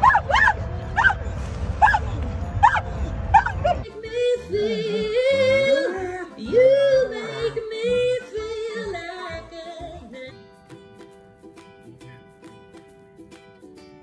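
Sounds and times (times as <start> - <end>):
dog howling: 0.0 - 1.2
plucked-string music: 0.0 - 14.0.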